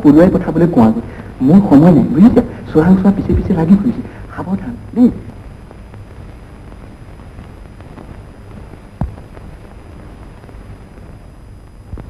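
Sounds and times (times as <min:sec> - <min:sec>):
film soundtrack hiss and hum: 0:00.0 - 0:12.0.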